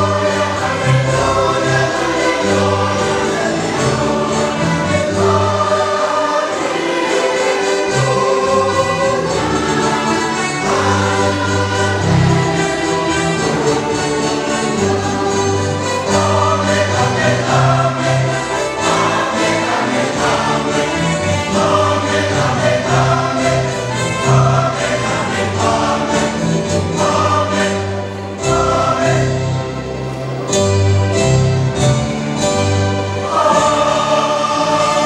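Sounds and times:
choir singing a hymn: 0:00.0 - 0:35.0.

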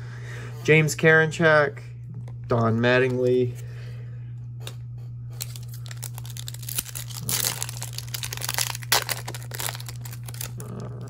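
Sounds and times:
low hum: 0:00.0 - 0:11.0
foil wrapper crinkling and tearing: 0:05.4 - 0:11.0.

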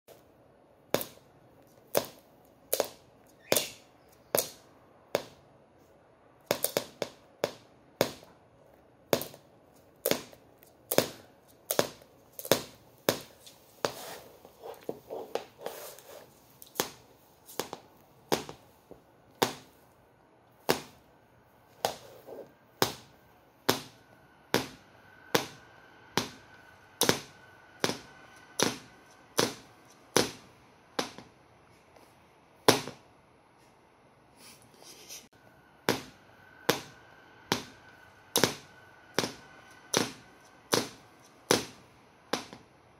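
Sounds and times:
shoe tapping on laminate floor: 0:10.1 - 0:19.7.

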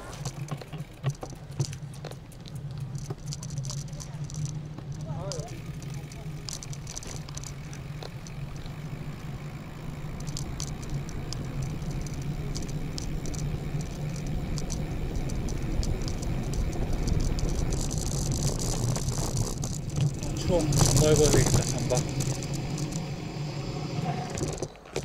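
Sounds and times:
bicycle rolling rumble: 0:00.0 - 0:25.0
rattling clicks from bicycle: 0:00.0 - 0:25.0.

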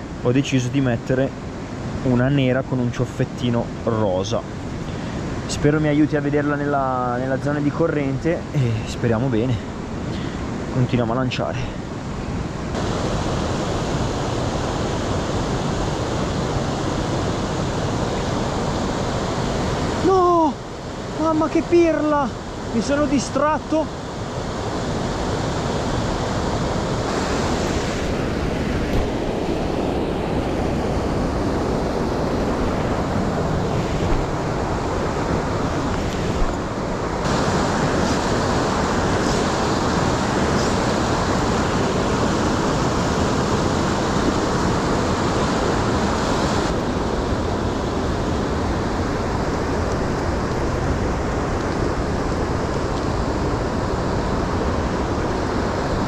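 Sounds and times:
stream rushing: 0:00.0 - 0:56.0.

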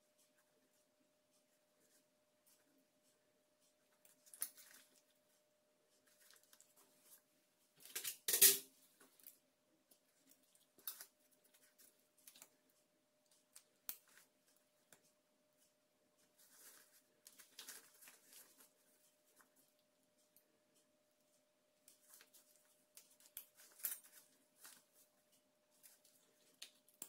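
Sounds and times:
rustling: 0:08.8 - 0:27.0.

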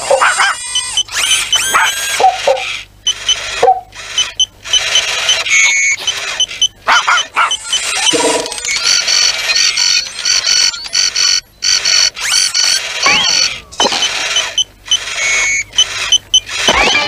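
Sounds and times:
cartoon dog yelping: 0:00.0 - 0:02.9, 0:05.6 - 0:09.1
electronic beeps and chirps: 0:00.7 - 0:06.8, 0:07.4 - 0:17.0.

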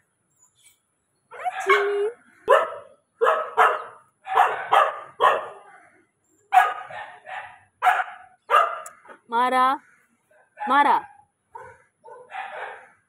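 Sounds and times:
dog barking: 0:01.4 - 0:05.8, 0:06.5 - 0:08.9, 0:10.4 - 0:13.0.

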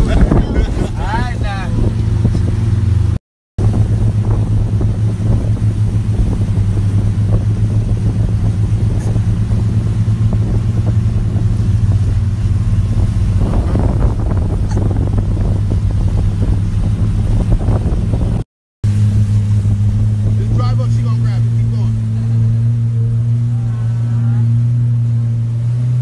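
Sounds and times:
wind noise: 0:00.0 - 0:18.4
water noise: 0:00.0 - 0:26.0
watercraft engine droning: 0:00.0 - 0:26.0.

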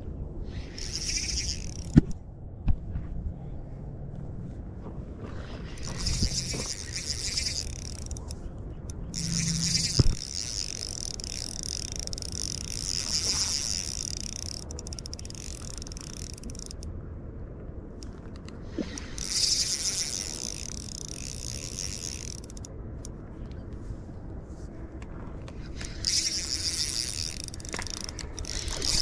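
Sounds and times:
fishing reel ticking whir: 0:00.6 - 0:02.0, 0:05.8 - 0:16.9, 0:18.9 - 0:23.1, 0:25.8 - 0:29.0.

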